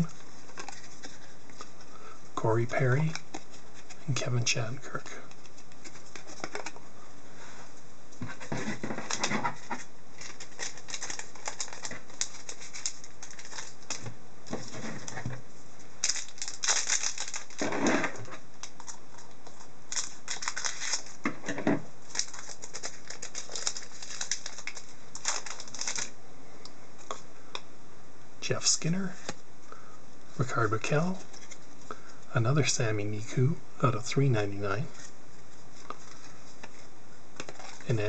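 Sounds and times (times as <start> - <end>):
cards rustling and clicking: 0.0 - 1.9, 2.6 - 6.8, 8.2 - 15.4, 16.0 - 26.1, 31.0 - 32.2, 35.7 - 38.0
foil wrapper crinkling: 8.4 - 15.2, 16.0 - 21.3, 22.0 - 26.2, 35.7 - 38.0.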